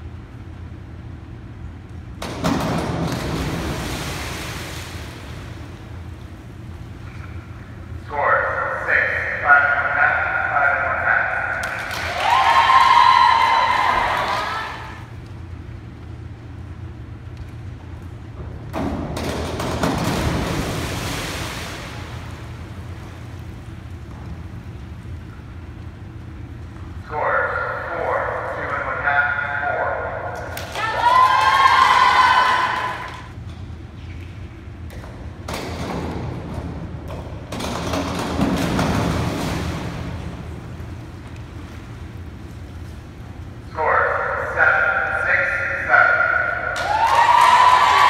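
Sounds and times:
steady low hum: 0.0s - 48.0s
springboard thumping: 2.1s - 5.8s, 18.3s - 23.2s, 35.2s - 40.9s
diver splashing into water: 2.4s - 5.6s, 19.8s - 22.8s.

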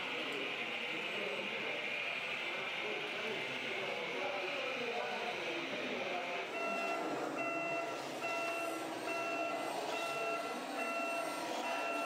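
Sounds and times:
reversing alarm beeps: 6.5s - 12.0s.

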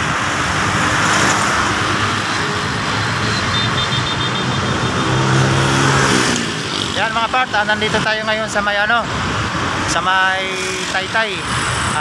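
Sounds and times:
road traffic: 0.0s - 12.0s
short high beeps: 3.2s - 4.9s.

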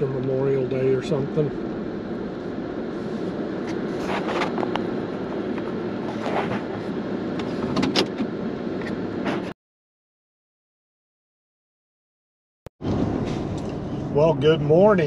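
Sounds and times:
road and engine noise: 0.0s - 9.6s, 12.8s - 15.0s.

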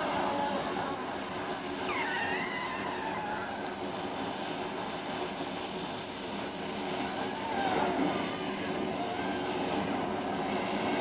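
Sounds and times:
battery fire hissing: 0.0s - 11.0s
whistling gliding tones: 1.8s - 3.6s.

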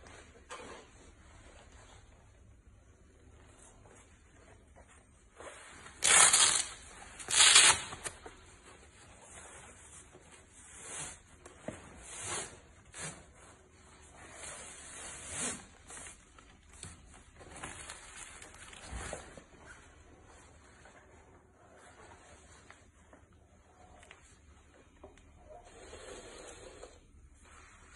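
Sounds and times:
fabric rustling: 0.0s - 25.5s
hook-and-loop fastener ripping: 6.0s - 8.2s.

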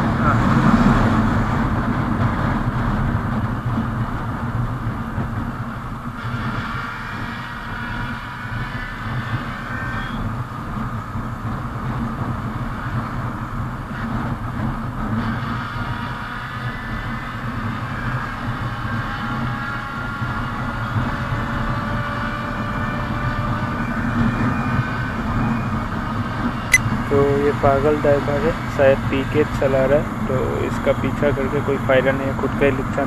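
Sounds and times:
tyre noise on road: 0.0s - 19.0s.

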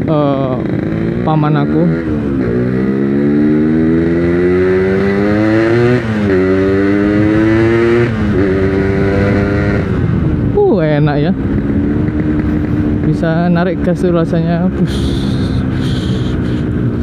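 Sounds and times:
motorcycle engine shifting up gears: 11.3s - 14.0s.

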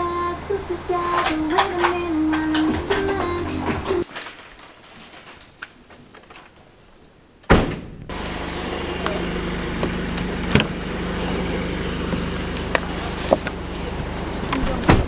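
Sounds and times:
car engine idling: 0.0s - 4.0s, 8.1s - 15.0s
car door thud: 7.5s - 8.0s, 9.8s - 10.8s.

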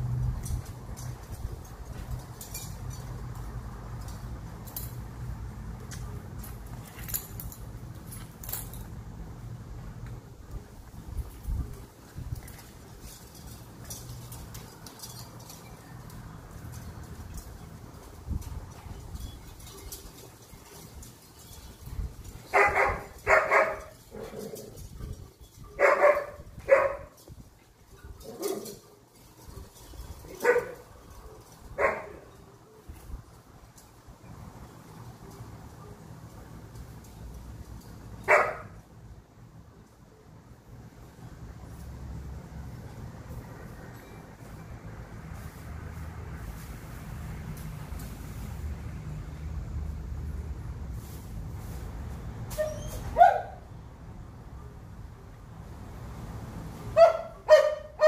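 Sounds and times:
dog collar and leash jingling: 0.1s - 9.0s, 11.0s - 38.8s
dog barking: 22.6s - 23.9s, 25.8s - 27.1s, 30.4s - 30.8s, 31.8s - 32.2s, 38.3s - 38.8s, 53.2s - 53.6s, 57.0s - 58.0s.

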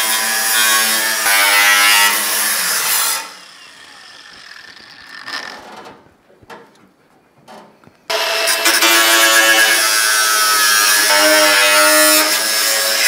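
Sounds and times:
angle grinder cutting sheet steel: 0.0s - 5.8s, 8.1s - 13.0s.

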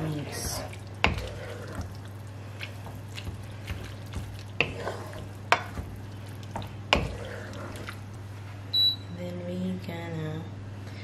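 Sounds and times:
wooden spoon stirring pasta: 0.0s - 8.6s
steady low hum: 0.0s - 11.0s.

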